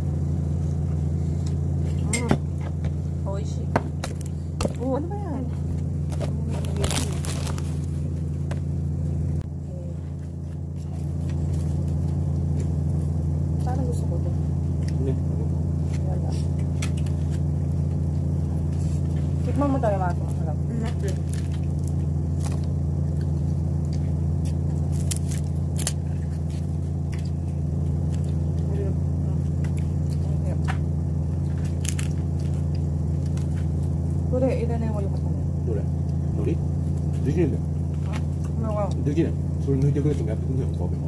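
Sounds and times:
steady low hum: 0:00.0 - 0:41.0
crunchy chewing: 0:05.5 - 0:08.8, 0:10.0 - 0:13.7, 0:14.5 - 0:19.5, 0:20.1 - 0:34.3.

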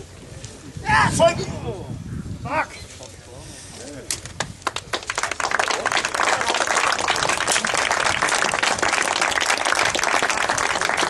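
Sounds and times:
crowd applauding: 0:04.4 - 0:11.0.

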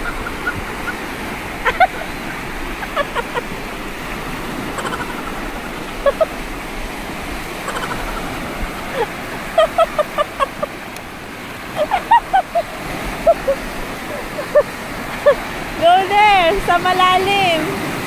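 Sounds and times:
high-pitched calls: 0:00.0 - 0:03.5, 0:04.7 - 0:06.4, 0:07.6 - 0:10.7
waves washing over pebbles: 0:00.0 - 0:18.0.

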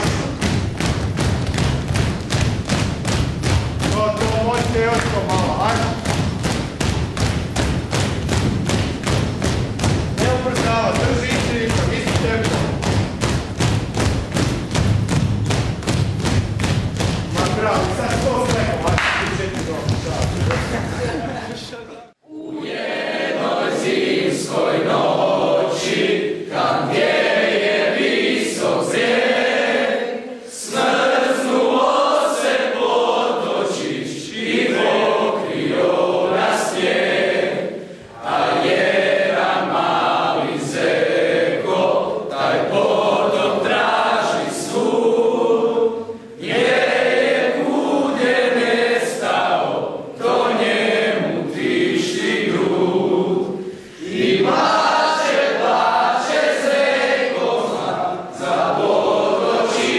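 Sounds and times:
male chorus singing: 0:10.2 - 0:12.7, 0:22.3 - 0:59.9.

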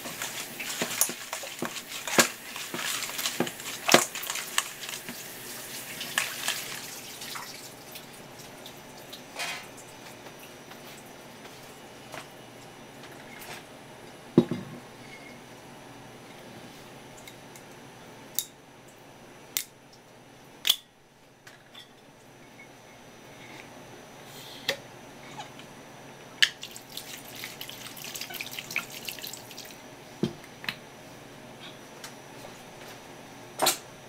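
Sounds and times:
liquid splashing into bowl: 0:26.4 - 0:29.8.

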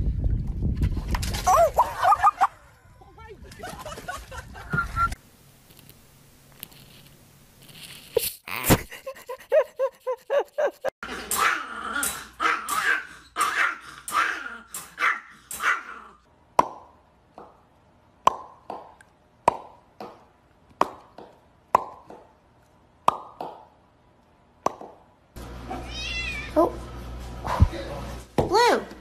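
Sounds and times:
small dog barking: 0:12.4 - 0:16.0.

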